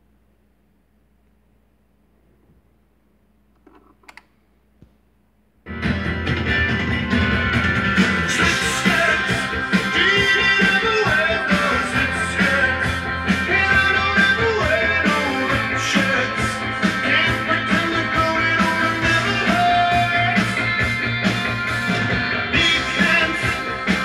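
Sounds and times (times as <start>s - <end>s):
song with singing and beat: 6.6s - 24.0s.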